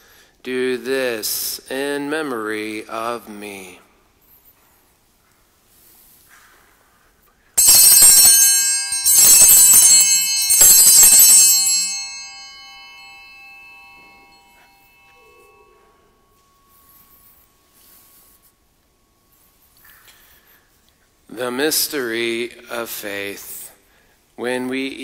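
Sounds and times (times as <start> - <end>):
altar bells ringing: 7.6 - 19.7.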